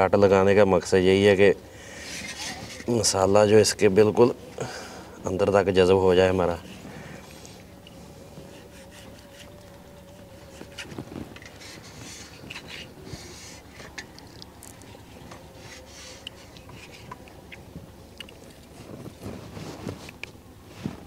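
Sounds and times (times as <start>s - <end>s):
knife scraping through meat: 1.9s - 2.9s, 6.6s - 14.2s.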